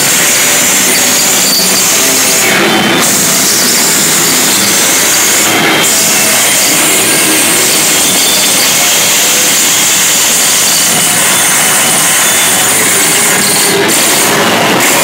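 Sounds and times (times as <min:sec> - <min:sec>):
grinding hissing noise music: 0:00.0 - 0:15.0.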